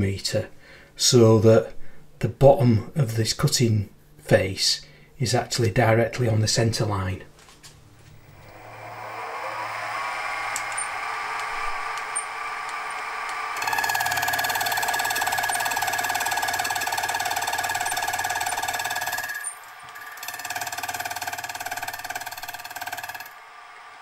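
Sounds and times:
milling machine motor whine: 8.2 - 24.0.

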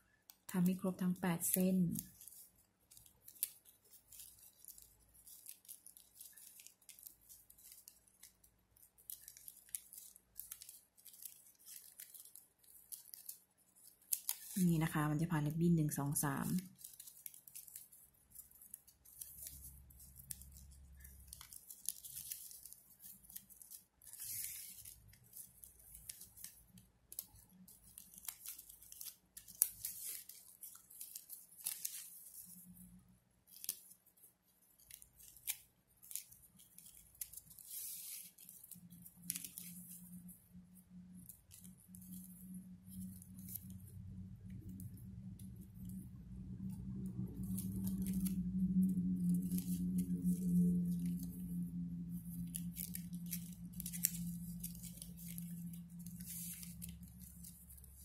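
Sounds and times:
ribbon rustling through loops: 0.0 - 58.0
low steady hum: 38.6 - 58.0.

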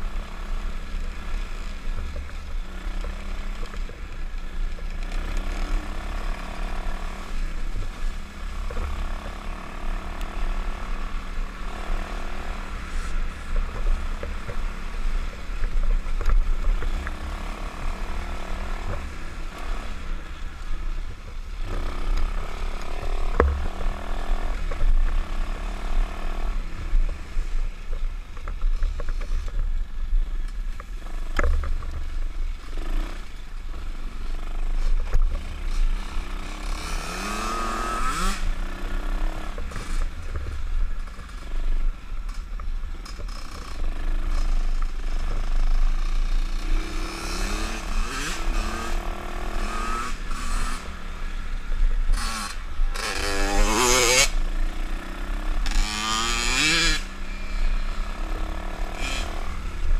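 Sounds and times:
motorbike engine revving: 34.1 - 40.6, 43.0 - 59.9.

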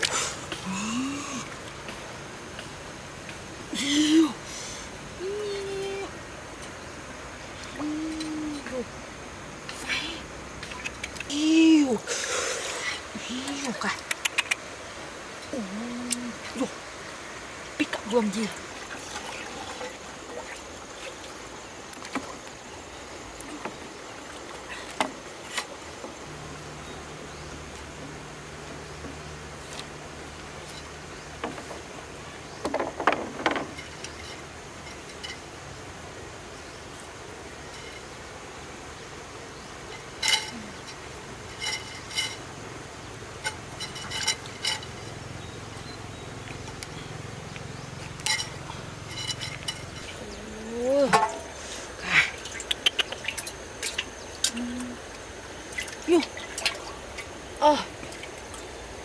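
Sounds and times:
low steady hum: 0.0 - 59.0
water sloshing: 17.6 - 26.6, 43.2 - 59.0.

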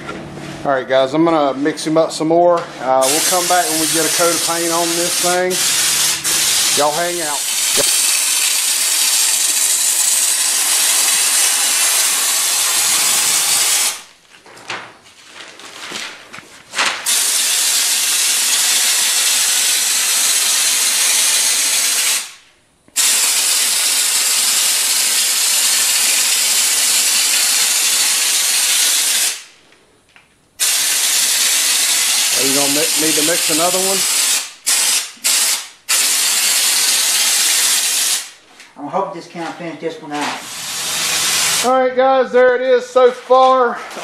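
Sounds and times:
spray gun hissing: 3.0 - 14.1, 30.6 - 38.4, 40.3 - 41.7.

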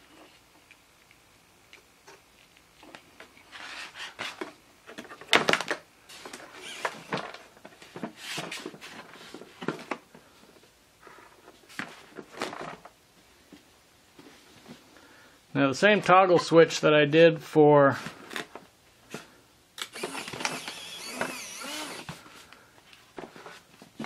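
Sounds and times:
handling clatter and rustling: 2.8 - 10.6, 11.3 - 13.0.

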